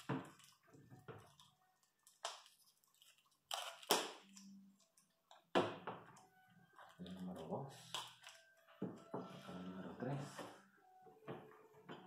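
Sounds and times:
objects rustling and knocking: 0:00.0 - 0:01.6.

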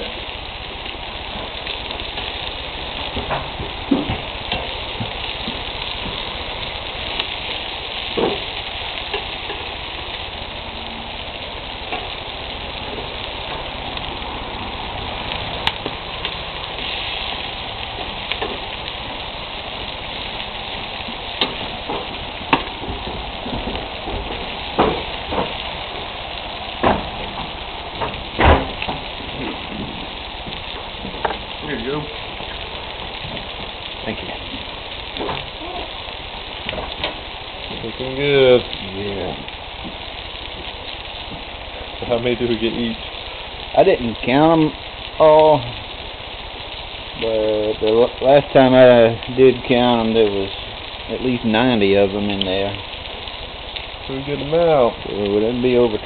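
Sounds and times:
meat sizzling on a grill: 0:00.0 - 0:56.0
fat popping: 0:01.2 - 0:10.2, 0:11.4 - 0:37.8.

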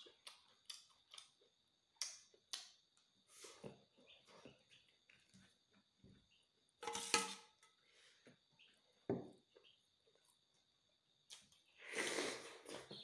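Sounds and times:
wet chewing and mouth clicks: 0:00.0 - 0:02.7
spoon scraping a metal bowl: 0:06.8 - 0:07.5.

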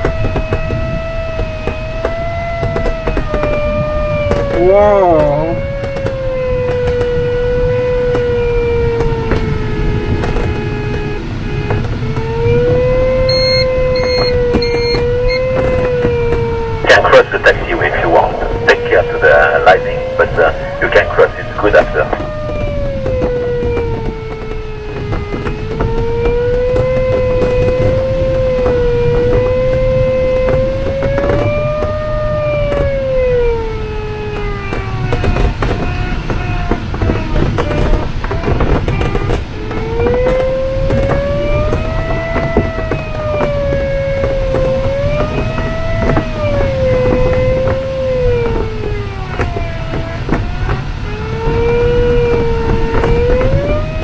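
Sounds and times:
airflow rushing in cockpit: 0:03.0 - 0:32.1
variometer tone: 0:09.9 - 0:23.9
variometer wavering tone: 0:12.4 - 0:16.4
short high beeps: 0:13.3 - 0:15.4.

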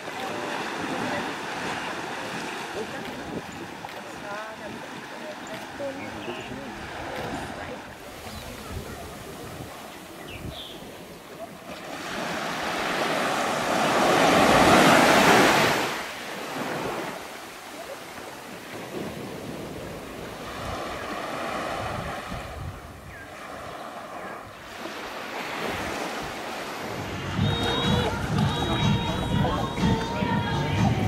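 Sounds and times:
small waves washing on sand: 0:00.0 - 0:30.3
wind on microphone: 0:01.0 - 0:11.4, 0:18.7 - 0:24.8.

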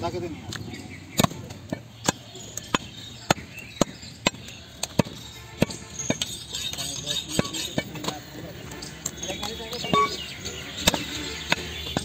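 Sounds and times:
knife chopping through bone: 0:01.1 - 0:08.2, 0:10.8 - 0:12.0.

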